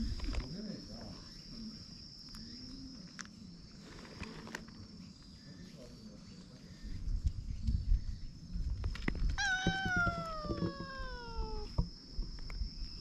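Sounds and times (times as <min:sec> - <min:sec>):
high-pitched insect drone: 0:09.4 - 0:13.0.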